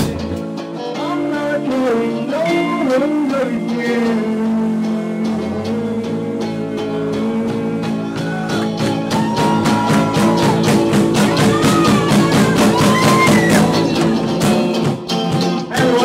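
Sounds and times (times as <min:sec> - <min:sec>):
man singing: 0:00.0 - 0:09.5, 0:15.4 - 0:16.0
bass guitar: 0:00.0 - 0:16.0
electric guitar: 0:00.0 - 0:16.0.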